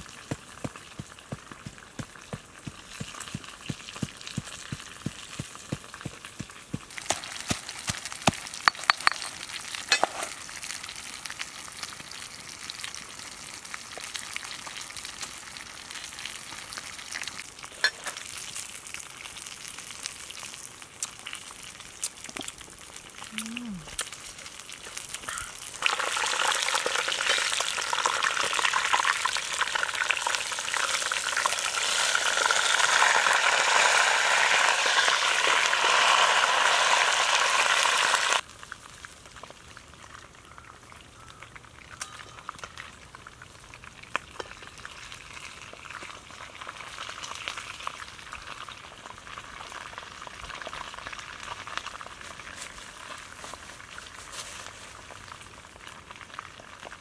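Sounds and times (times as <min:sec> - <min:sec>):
oil popping: 0:00.0 - 0:10.4
fish frying in hot oil: 0:00.0 - 0:23.3, 0:24.0 - 0:54.1, 0:54.9 - 0:57.0.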